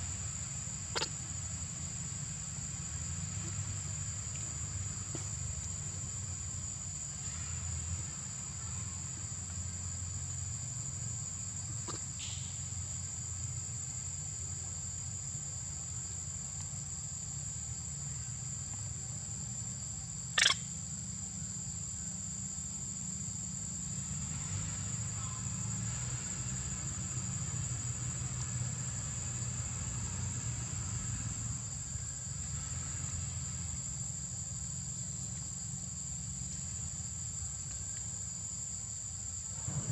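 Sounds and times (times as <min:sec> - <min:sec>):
insects chirping: 0:00.0 - 0:39.9
sharp click: 0:20.4 - 0:20.6.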